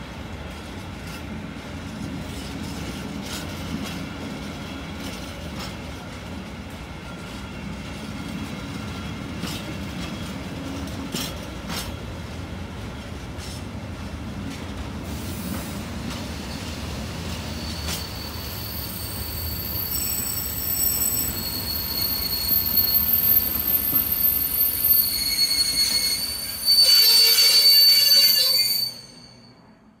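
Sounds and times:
freight train rolling past: 0.0 - 30.0
wheels clicking over rail joints: 9.4 - 12.0
high wheel squeals: 17.4 - 29.6.

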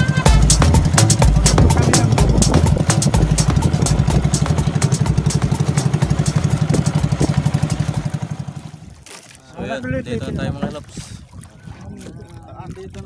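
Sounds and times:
boat engine chugging: 0.0 - 9.0.

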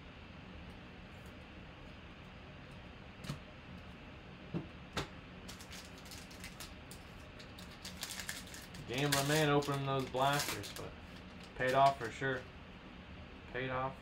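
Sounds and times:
foil card pack crinkling: 5.4 - 12.4.

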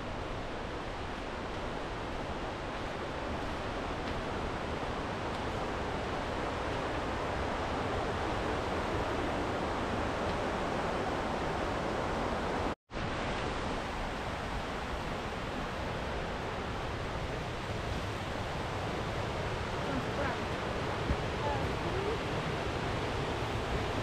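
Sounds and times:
rushing water: 0.0 - 24.0.

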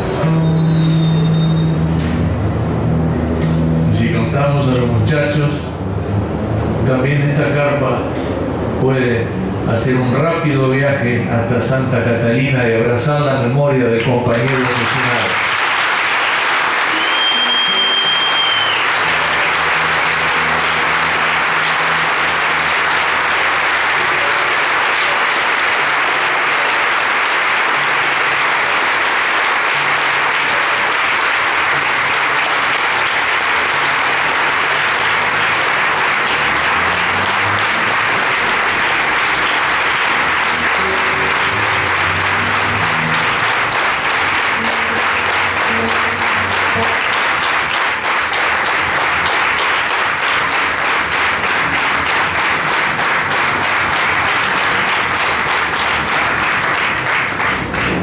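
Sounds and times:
audience applause: 0.0 - 1.8, 14.3 - 58.0
high steady whistle: 0.0 - 1.8, 16.9 - 19.2
classical guitar playing: 0.0 - 6.9, 19.0 - 25.2, 31.7 - 47.4.

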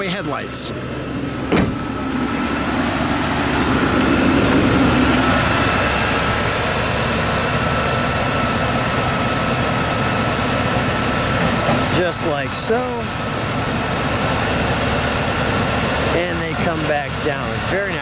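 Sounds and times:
car engine idling: 0.0 - 18.0
car hood shutting thump: 1.5 - 1.9.

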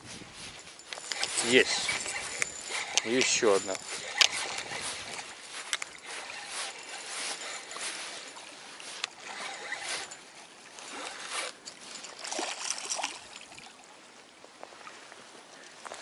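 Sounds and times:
fishing reel rasping: 0.8 - 10.2
fish splashing: 12.0 - 13.8.

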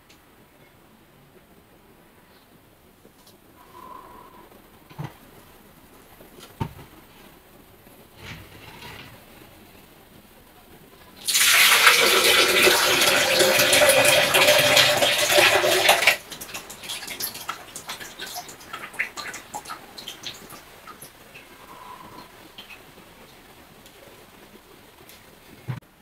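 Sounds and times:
liquid pouring into plastic jug: 11.2 - 19.8
liquid dripping: 11.2 - 22.8.

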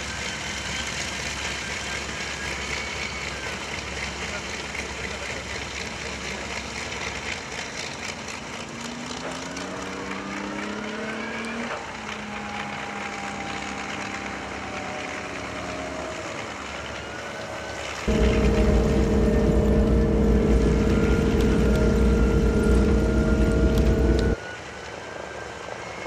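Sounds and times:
propeller plane engines running: 0.0 - 26.0.

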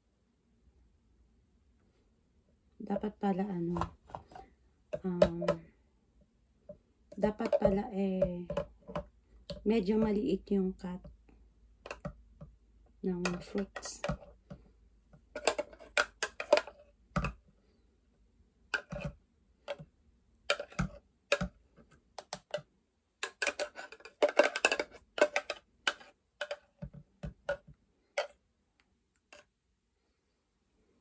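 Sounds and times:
metal spoon scraping blender jar: 7.3 - 7.8, 15.4 - 16.7, 18.8 - 19.8, 23.2 - 26.7.

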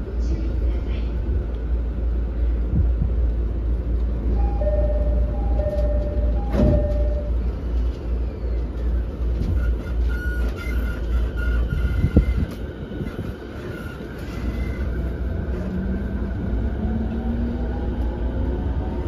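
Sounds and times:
train cabin low rumble: 0.0 - 19.0
train doors shutting: 4.1 - 19.0
two-tone door chime: 4.4 - 7.4.

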